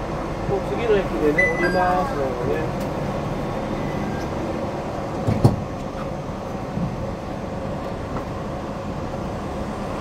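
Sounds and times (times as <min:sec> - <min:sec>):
train interior rumble: 0:00.0 - 0:10.0.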